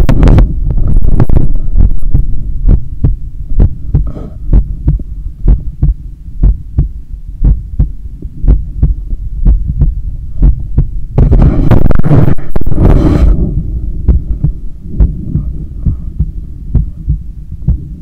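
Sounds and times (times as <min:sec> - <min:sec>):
rubbing noise on microphone: 0:00.0 - 0:02.9, 0:08.1 - 0:18.0
heartbeat thumps: 0:00.0 - 0:18.0
low rumble: 0:00.0 - 0:18.0.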